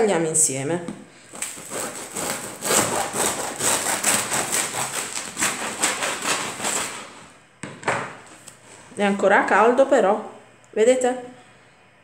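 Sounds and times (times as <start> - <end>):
bread knife sawing crust: 1.3 - 7.3.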